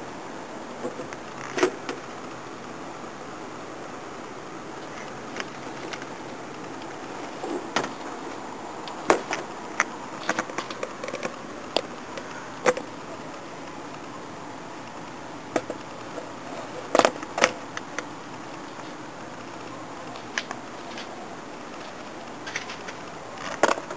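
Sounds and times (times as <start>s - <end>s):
steady hiss: 0.0s - 23.9s
plastic parts clicking and knocking: 8.9s - 12.9s, 15.5s - 18.1s, 21.7s - 23.9s.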